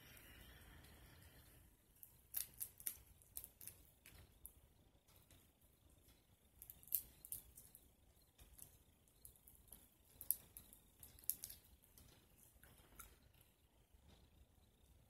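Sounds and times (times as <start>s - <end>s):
crawfish shells cracking: 1.9s - 13.2s.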